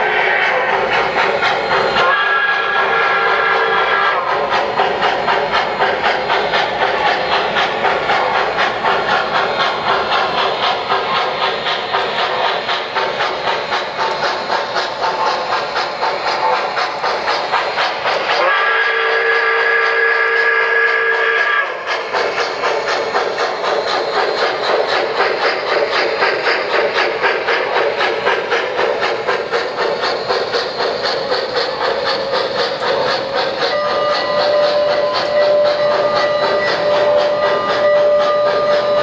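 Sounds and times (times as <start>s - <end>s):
model steam locomotive chuffing: 0.0s - 39.0s
steam whistle: 1.8s - 4.7s, 18.1s - 22.0s, 33.0s - 39.0s.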